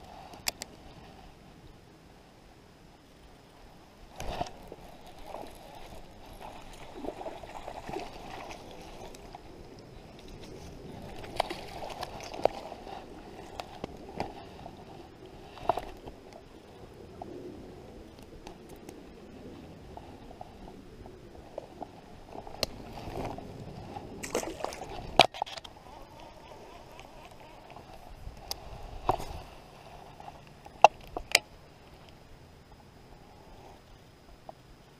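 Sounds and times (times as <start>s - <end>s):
water sloshing: 4.2s - 16.2s, 21.5s - 25.4s.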